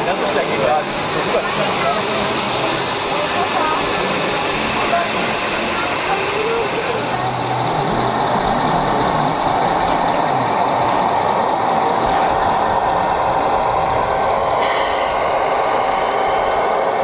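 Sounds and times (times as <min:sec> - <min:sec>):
air brake hiss: 0:14.6 - 0:15.4.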